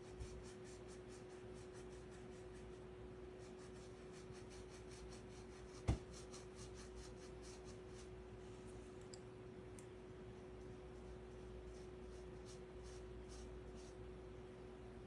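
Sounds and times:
dry brush scratching paper: 0.0s - 8.1s, 10.6s - 14.0s.

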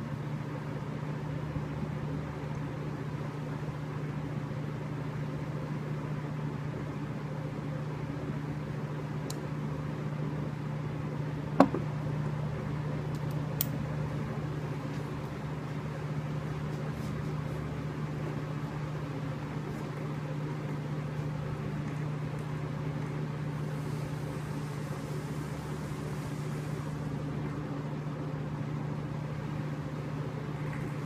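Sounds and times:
low mechanical hum: 0.0s - 31.0s
sharp knock: 11.6s - 11.8s.

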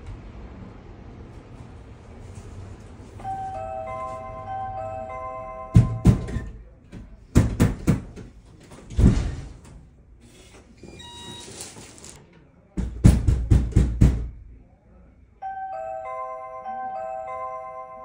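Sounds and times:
knocking on a door: 5.7s - 6.5s, 7.3s - 8.3s, 12.8s - 14.4s
electronic door lock beeps and whirr: 10.4s - 12.1s.

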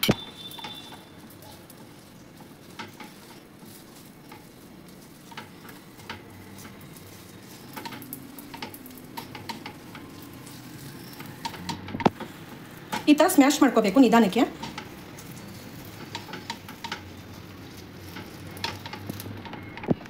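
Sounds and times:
oil sizzling on a pan: 0.0s - 20.0s
metal masher tapping a pan: 14.5s - 17.5s, 18.1s - 20.0s.

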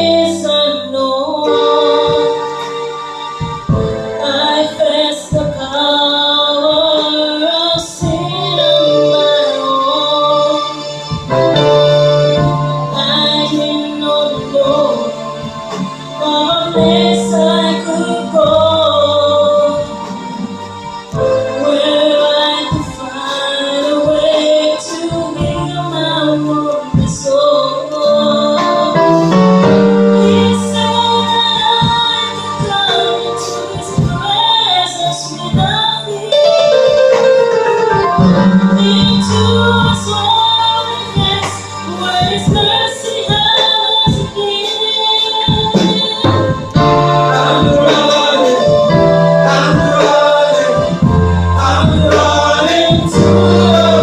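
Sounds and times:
group singing gospel in harmony: 0.0s - 54.0s
keyboard chords: 0.0s - 54.0s
drum hits: 3.4s - 4.4s, 36.9s - 40.4s, 45.5s - 54.0s.

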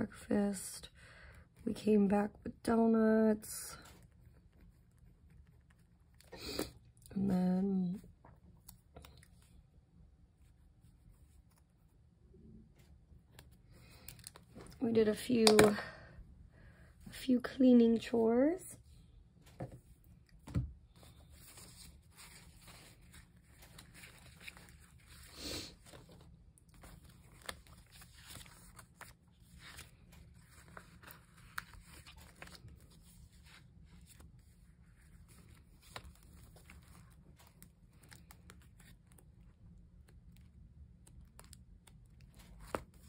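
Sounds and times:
paper and stickers rustling: 19.5s - 43.0s.

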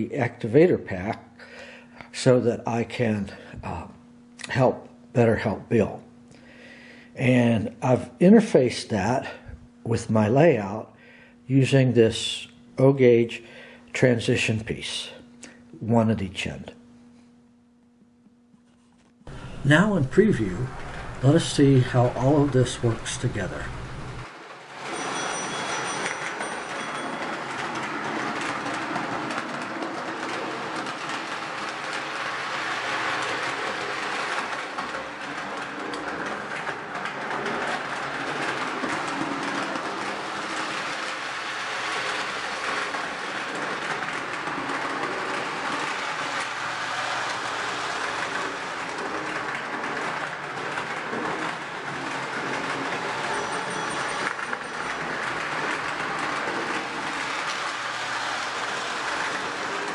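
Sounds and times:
toy train running on track: 19.5s - 59.9s.

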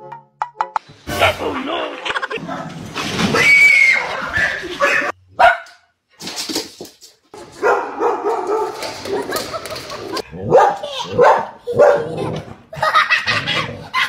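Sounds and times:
dogs barking: 4.4s - 5.8s, 7.5s - 9.4s, 10.3s - 13.8s.

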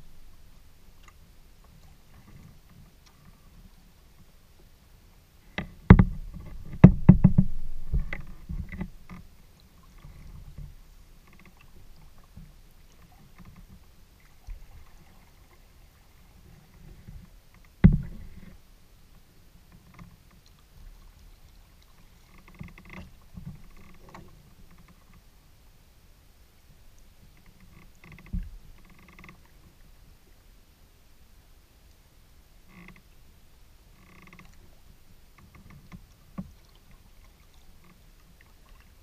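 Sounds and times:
faint water sounds: 0.0s - 39.0s
knocks on kayak hull: 5.6s - 8.8s, 17.8s - 18.3s.

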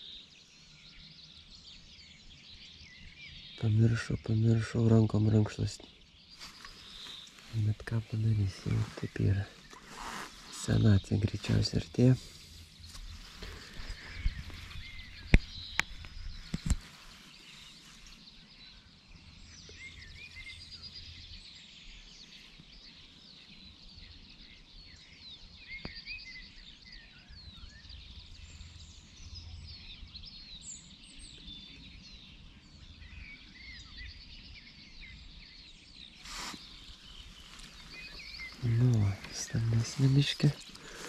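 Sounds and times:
songbirds chirping and singing: 0.0s - 41.0s
rustle: 5.5s - 41.0s.

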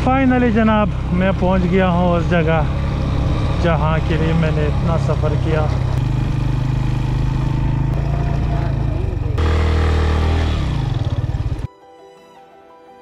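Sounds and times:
motorcycle engine running: 0.0s - 11.7s
soft music: 11.7s - 13.0s.

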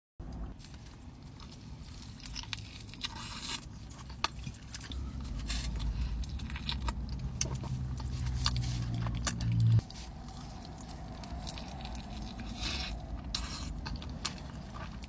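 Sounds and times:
chewing: 0.6s - 15.0s
tortilla tearing: 0.6s - 15.0s
low hum: 3.6s - 15.0s.

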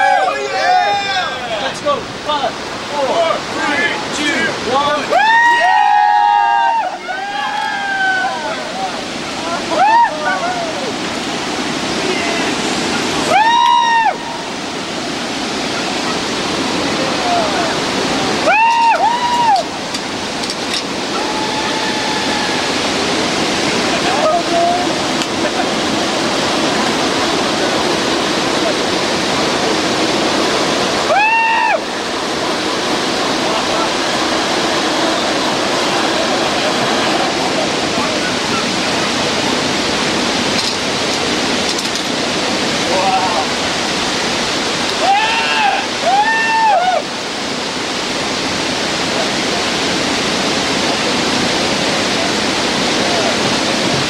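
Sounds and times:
whitewater river rushing: 0.0s - 54.0s
person yelling: 45.0s - 47.0s.

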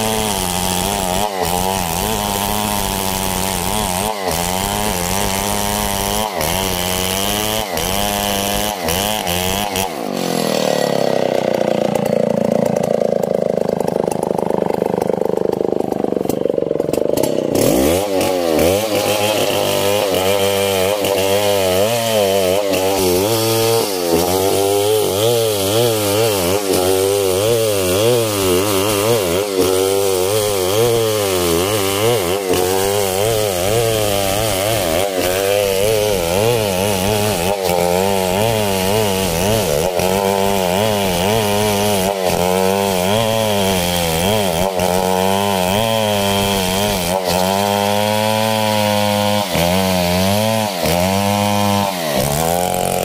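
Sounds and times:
chainsaw cutting log: 0.0s - 53.0s.

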